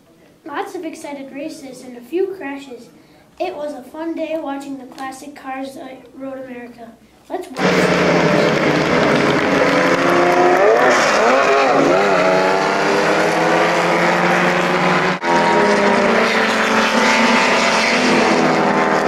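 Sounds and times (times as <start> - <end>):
race car engines revving: 7.6 - 19.0.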